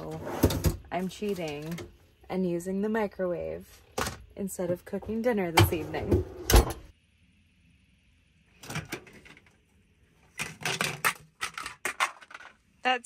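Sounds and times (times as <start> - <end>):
plastic containers clattering on floor: 10.3 - 12.6.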